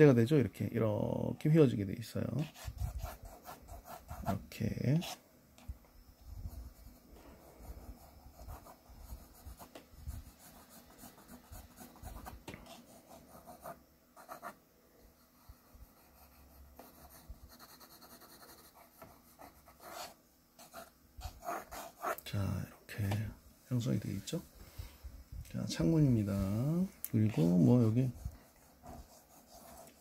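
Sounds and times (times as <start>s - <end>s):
pencil scratching on paper: 2.4s - 5.2s, 6.5s - 14.6s, 15.2s - 22.2s, 27.3s - 30.0s.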